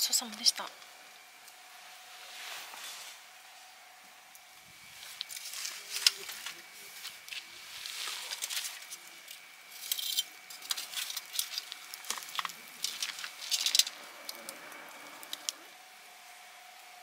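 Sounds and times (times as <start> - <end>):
campfire crackling and popping: 4.3 - 15.8
fire spitting hiss: 4.6 - 9.9, 10.5 - 15.7.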